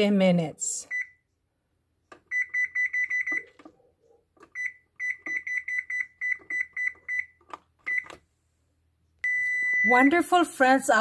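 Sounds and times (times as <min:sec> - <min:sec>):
oven control panel beeping: 0:02.2 - 0:03.5, 0:04.4 - 0:08.2, 0:09.2 - 0:10.1.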